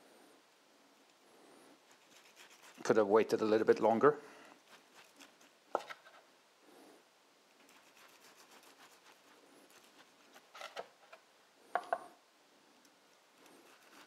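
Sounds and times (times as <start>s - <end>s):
knife sawing through crunchy crust: 1.9s - 2.9s, 7.7s - 10.8s, 13.5s - 14.0s.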